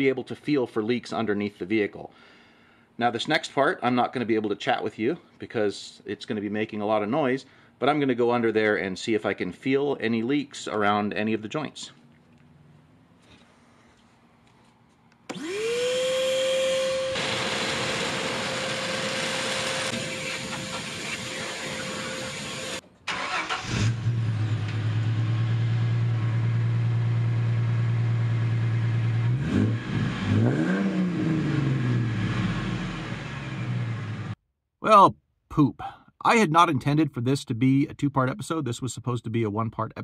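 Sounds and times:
shop vac motor whining: 15.3 - 22.8
car engine idling and revving: 23.6 - 34.4.

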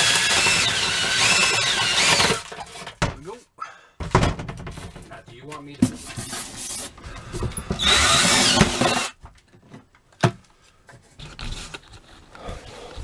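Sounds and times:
cordless drill whining: 0.0 - 2.7, 7.5 - 9.2.

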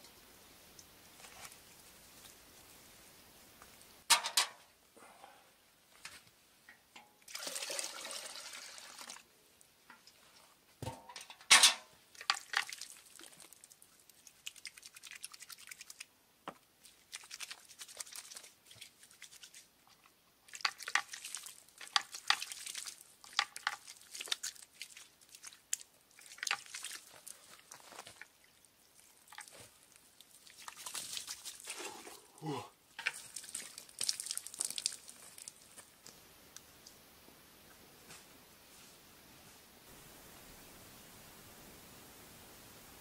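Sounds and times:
liquid splashing: 12.2 - 16.0, 20.5 - 32.3, 33.1 - 35.7.

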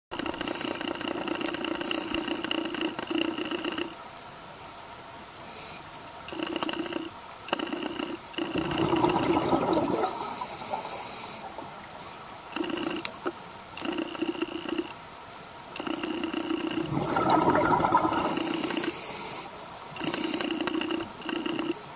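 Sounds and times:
exhaled bubbles: 8.4 - 11.5, 16.6 - 21.6
regulator breathing hiss: 10.2 - 13.3, 18.3 - 21.4.

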